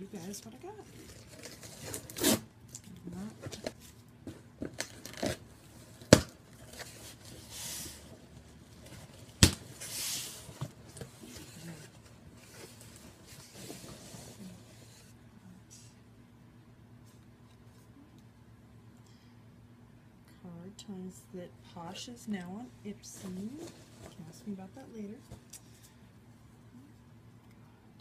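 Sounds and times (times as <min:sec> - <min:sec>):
packing tape tearing: 0:01.0 - 0:02.9, 0:04.6 - 0:07.0.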